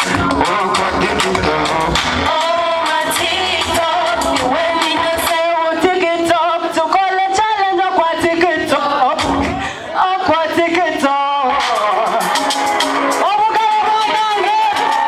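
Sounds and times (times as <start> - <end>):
backing music: 0.0 - 15.0
woman singing into a microphone: 2.3 - 12.0.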